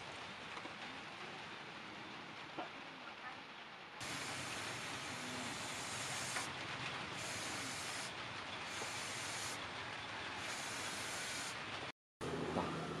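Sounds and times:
spray-paint can hissing: 4.0 - 6.5, 7.2 - 8.1, 8.7 - 9.6, 10.4 - 11.7.

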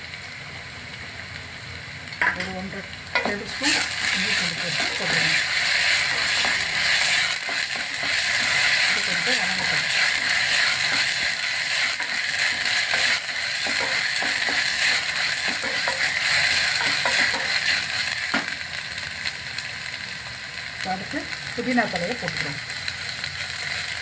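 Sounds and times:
onions sizzling in hot oil: 0.0 - 24.0
wooden spatula scraping a pot: 3.2 - 17.8.

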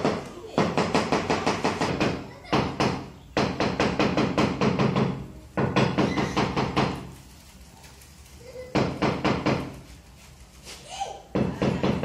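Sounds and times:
rapid hammer tapping: 0.0 - 7.1.

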